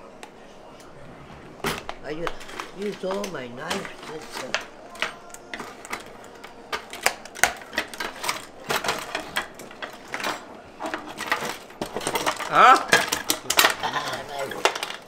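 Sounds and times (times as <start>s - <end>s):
cutlery clinking in drawer: 1.6s - 15.0s
person's voice: 2.0s - 6.4s.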